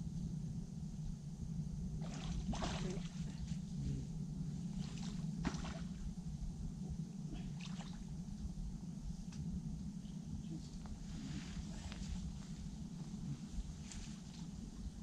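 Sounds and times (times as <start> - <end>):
steady low hum: 0.0 - 15.0
fish splashing in water: 2.0 - 3.2.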